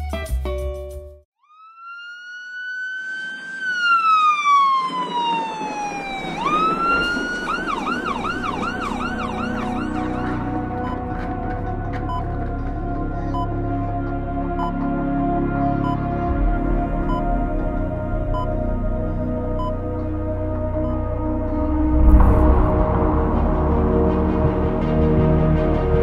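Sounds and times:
ambulance siren wailing and yelping: 1.4 - 13.8
low music drone: 5.8 - 26.0.

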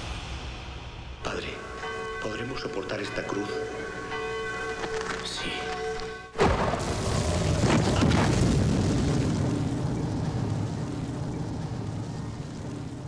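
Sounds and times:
debris clattering: 6.4 - 13.0
deep rumbling boom: 6.4 - 13.0.

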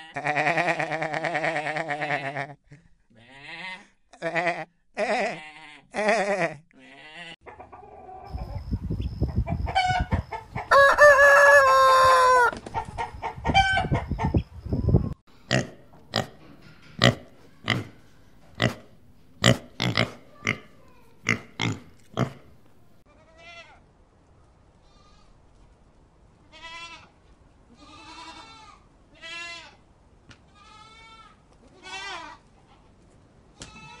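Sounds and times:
goat bleating: 3.2 - 7.4, 26.5 - 27.1, 27.7 - 29.8, 30.5 - 32.4
pig grunting: 15.5 - 16.4, 17.0 - 18.0, 18.6 - 22.6.

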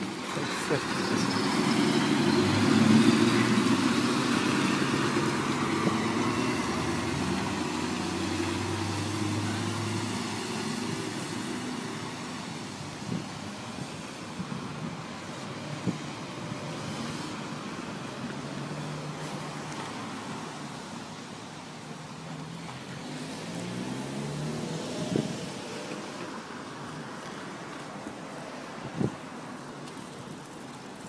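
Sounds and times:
vehicles driving past: 0.0 - 31.0.

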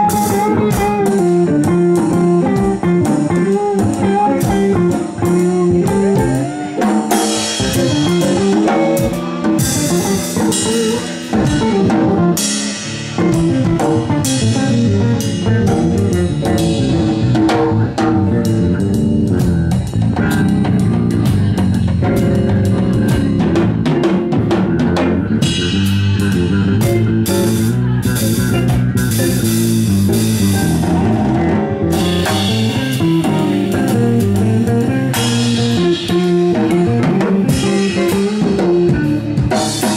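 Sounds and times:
drum kit: 0.0 - 39.9
jazz trio playing: 0.0 - 39.9.

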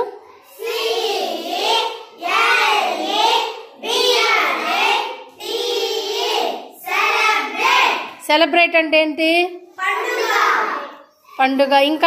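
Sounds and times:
children chanting in unison: 0.3 - 8.2, 9.8 - 11.2.

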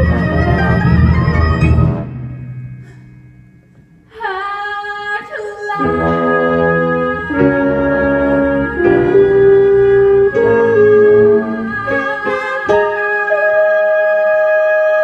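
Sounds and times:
pit orchestra music: 0.0 - 3.1, 5.8 - 13.8.

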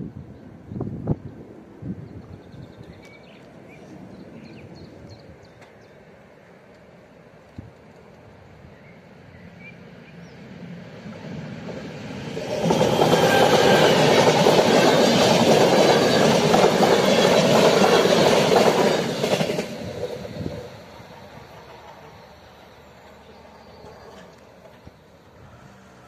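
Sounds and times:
train wheels running on rails: 10.4 - 26.0.

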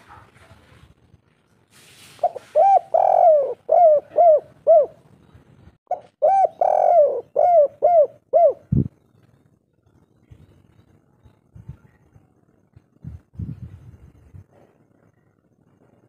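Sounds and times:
dove cooing: 2.2 - 5.1, 5.9 - 8.9.

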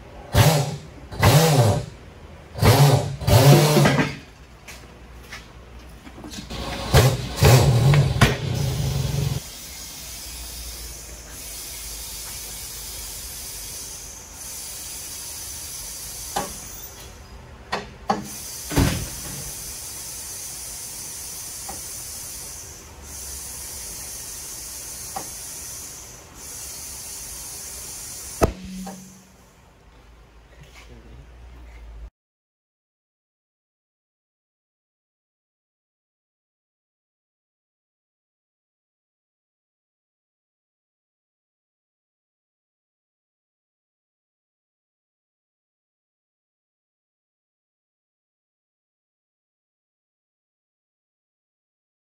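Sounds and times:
compressed air hissing into tire: 8.6 - 17.0, 18.2 - 29.3.

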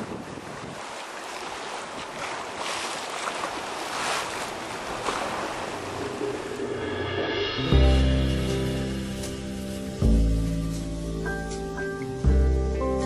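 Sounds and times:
wind buffeting microphone: 0.0 - 2.6
sea water rushing past boat: 0.0 - 12.7
music: 6.9 - 13.0.

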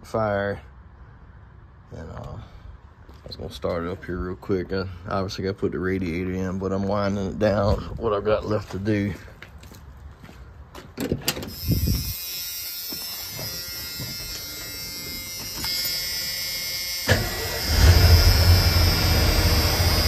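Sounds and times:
engine starting and running: 17.0 - 20.0.

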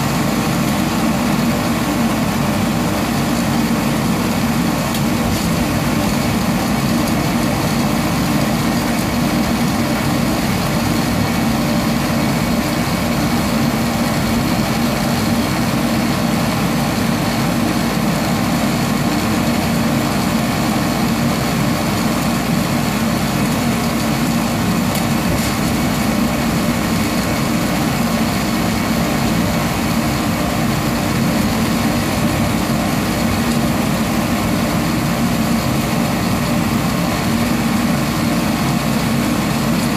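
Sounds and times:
coffee roaster blower running: 0.0 - 39.9.

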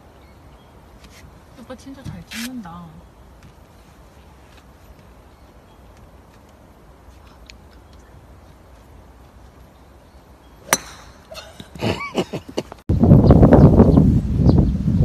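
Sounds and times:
golf club striking ball: 10.6 - 11.8.

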